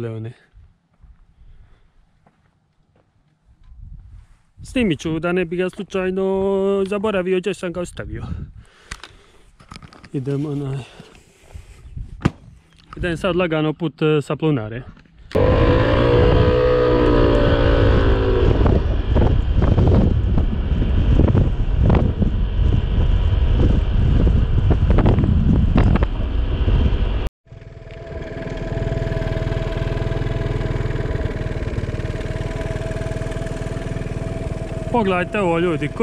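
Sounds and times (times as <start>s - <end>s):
wind buffeting microphone: 3.6s - 5.1s, 11.6s - 13.2s, 15.3s - 27.3s
motorbike engine running: 15.4s - 23.8s, 27.5s - 36.0s.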